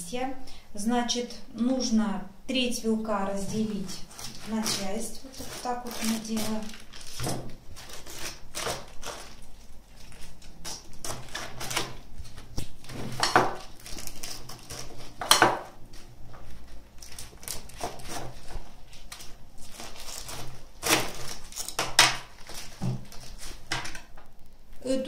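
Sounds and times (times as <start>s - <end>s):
knife cutting crunchy cabbage: 3.5s - 15.8s, 17.0s - 24.0s.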